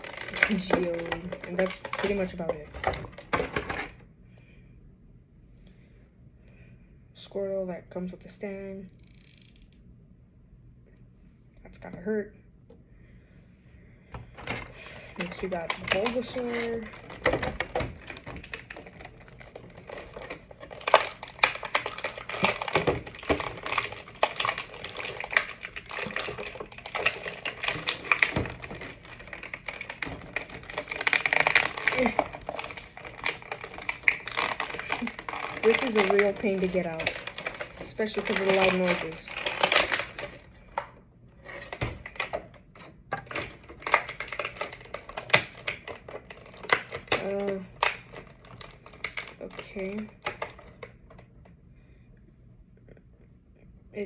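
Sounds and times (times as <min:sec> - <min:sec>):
plastic bag crinkling: 0:00.0 - 0:04.0, 0:14.4 - 0:51.0
plastic packaging crackling: 0:00.0 - 0:04.0, 0:14.4 - 0:51.2.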